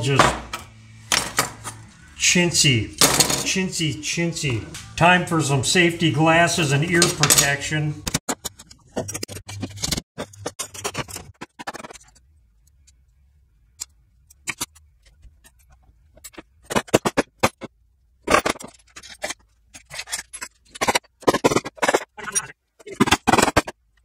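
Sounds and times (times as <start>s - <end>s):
metal parts clattering on steel: 14.4s - 23.8s.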